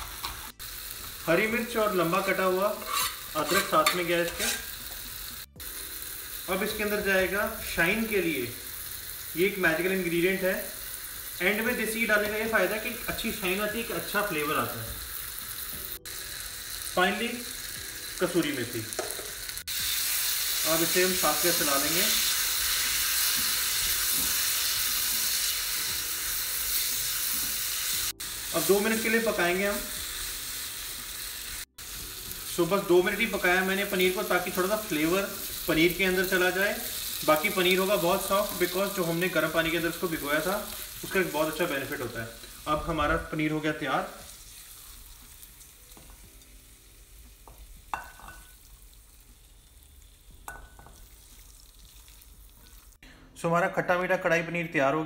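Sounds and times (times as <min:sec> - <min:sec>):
food sizzling in a pan: 0:00.0 - 0:53.0
spatula scraping a wok: 0:02.7 - 0:04.8.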